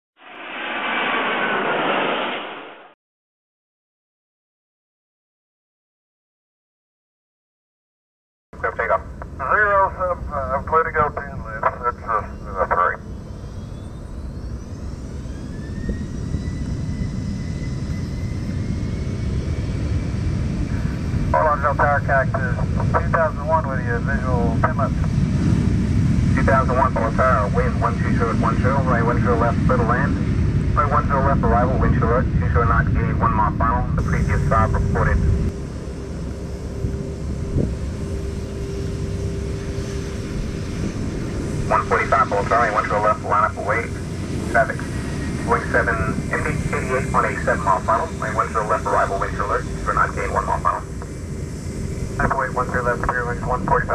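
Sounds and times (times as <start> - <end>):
jet engines spooling up: 0.2 - 3.0, 9.2 - 53.9
wind buffeting microphone: 24.3 - 49.8.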